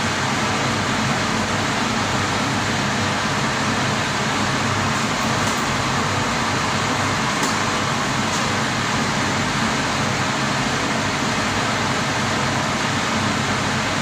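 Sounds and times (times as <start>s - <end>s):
gas water boiler rushing: 3.3s - 10.0s.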